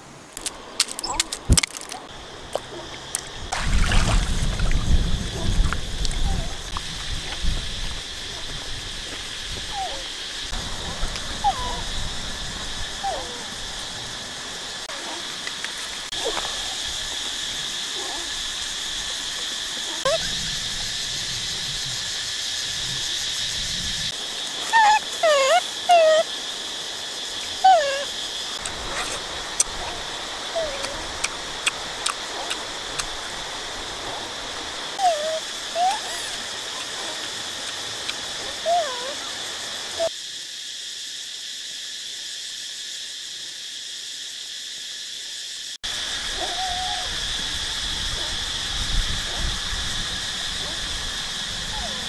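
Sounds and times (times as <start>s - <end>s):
insects droning: 0.0s - 52.0s
monkeys squeaky calls: 24.6s - 26.3s, 27.6s - 28.1s, 35.0s - 37.2s, 38.6s - 39.2s, 46.4s - 47.1s.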